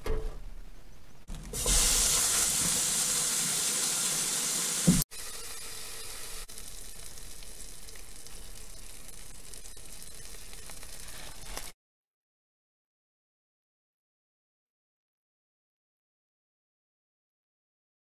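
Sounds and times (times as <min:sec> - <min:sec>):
burger patty sizzling in pan: 0:01.6 - 0:11.7.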